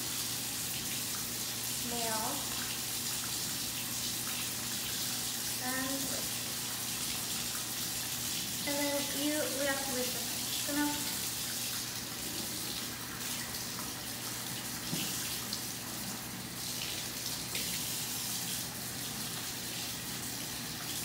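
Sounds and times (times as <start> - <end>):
faucet running into steel sink: 0.0 - 21.0
splashes of hands rinsing: 10.7 - 21.0.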